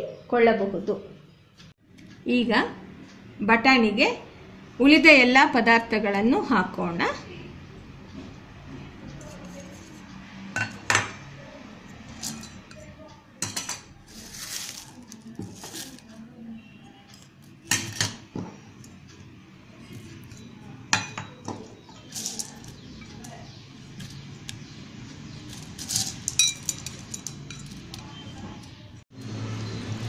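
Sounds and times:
bowls clinking against steel bowl: 9.2 - 11.3, 12.0 - 16.1, 17.1 - 19.0, 20.1 - 24.2, 25.5 - 28.7.

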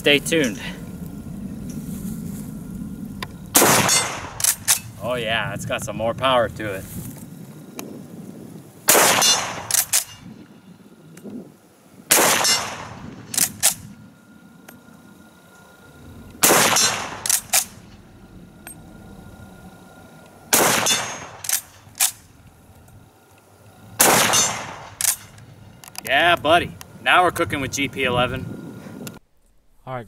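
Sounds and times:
rifle shots: 3.5 - 5.0, 8.9 - 10.2, 12.1 - 13.9, 16.4 - 18.0, 20.5 - 22.3, 24.0 - 25.4.

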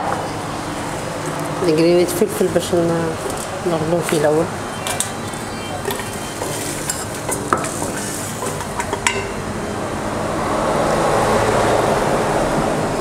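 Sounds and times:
food frying in oil: 5.8 - 9.0.

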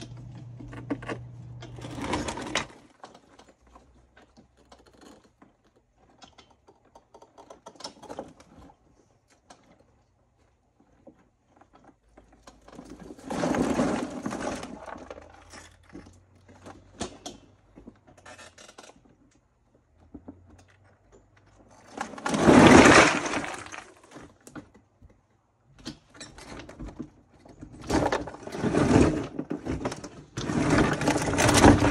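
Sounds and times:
cart rattling over stones: 0.0 - 8.7, 10.9 - 18.8, 21.6 - 24.6, 26.7 - 31.9
stones clattering from dump cart: 12.9 - 15.6, 21.9 - 24.4, 27.6 - 31.9.

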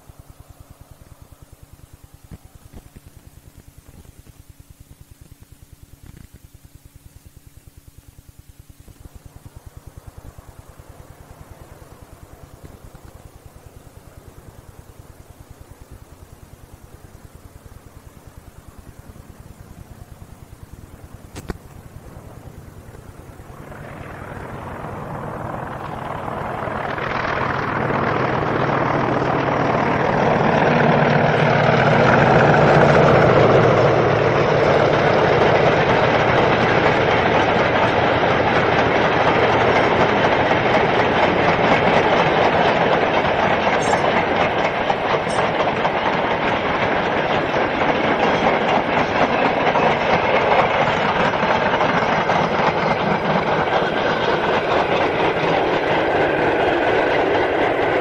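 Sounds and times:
diesel locomotive passing: 0.0 - 3.0, 9.1 - 58.0
train wheels clattering over rail joints: 19.7 - 58.0.

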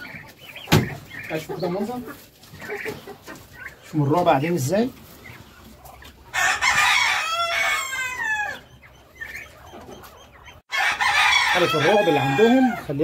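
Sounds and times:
rooster crowing: 6.3 - 8.6, 10.7 - 12.8.

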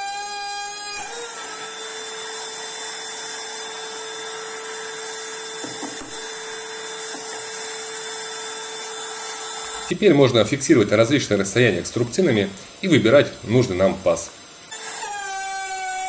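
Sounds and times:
router running steadily: 0.0 - 16.0.

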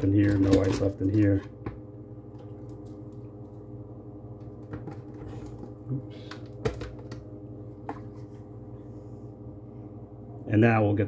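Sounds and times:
plastic cups clicking: 0.0 - 1.8
steady low hum: 0.0 - 11.0.

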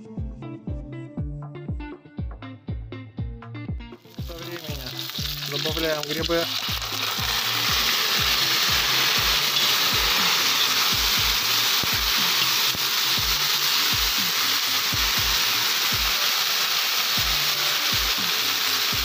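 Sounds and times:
background music with beat: 0.0 - 19.0
mushrooms sizzling in fat: 4.0 - 19.0
metal skimmer stirring: 4.1 - 16.4.

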